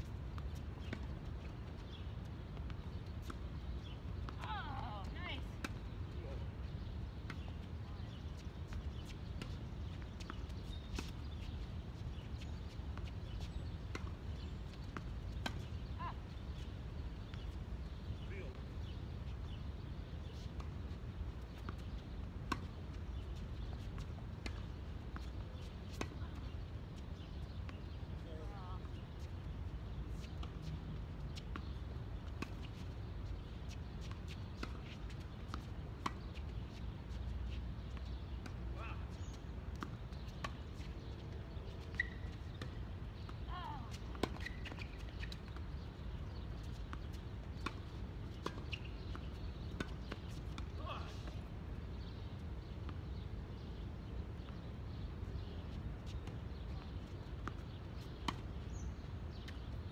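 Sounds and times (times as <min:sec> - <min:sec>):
tennis ball bouncing on court: 0:02.6 - 0:05.9, 0:12.4 - 0:16.0, 0:21.5 - 0:26.5, 0:31.4 - 0:36.8, 0:41.8 - 0:45.6, 0:46.3 - 0:50.7, 0:57.2 - 0:59.6.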